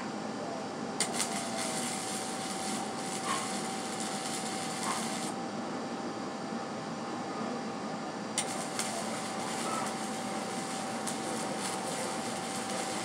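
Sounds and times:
steady background hum: 0.0 - 13.0
welding arc crackling: 1.0 - 5.4, 8.4 - 13.0.

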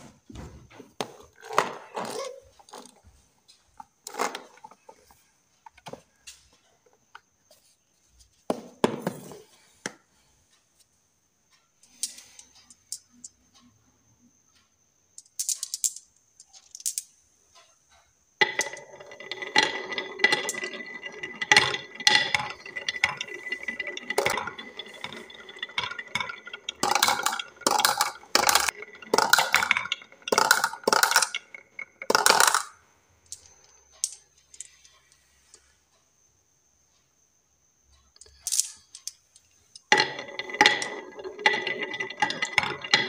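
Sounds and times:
balls rolling down wooden track: 0.9 - 3.0, 3.8 - 6.0, 18.4 - 34.9, 38.2 - 43.0.

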